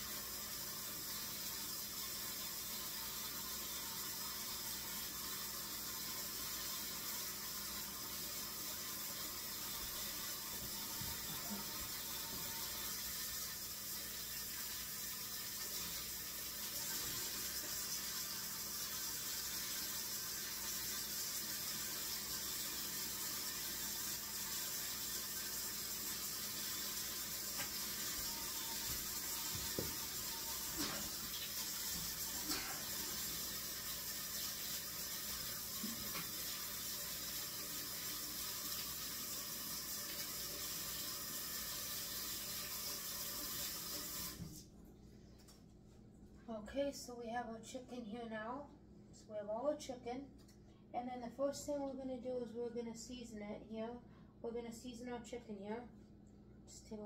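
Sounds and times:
tap water running into sink: 0:00.0 - 0:44.6.

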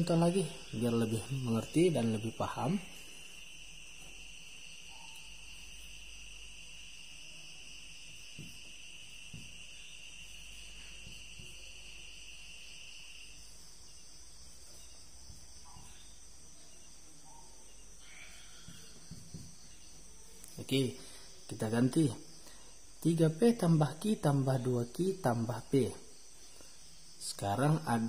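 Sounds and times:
marker tapping on whiteboard: 0:08.1 - 0:08.6, 0:18.6 - 0:19.6.

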